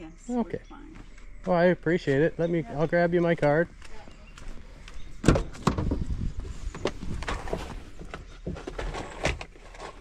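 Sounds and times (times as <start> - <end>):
footsteps on a driveway: 0.4 - 5.2.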